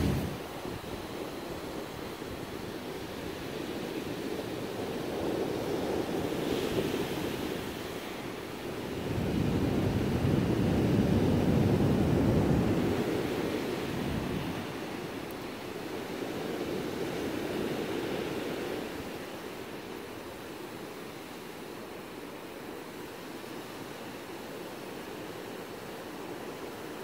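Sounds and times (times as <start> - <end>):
wind on microphone: 0.0 - 15.2
ocean surf washing on beach: 0.0 - 27.0.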